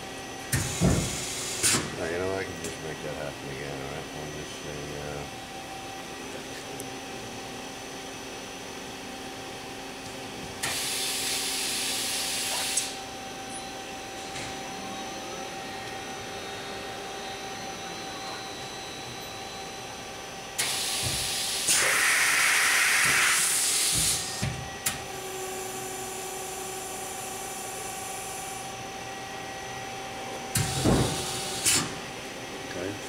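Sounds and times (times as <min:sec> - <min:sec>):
machine hum: 0:00.0 - 0:33.0
loud air hiss: 0:20.6 - 0:24.3.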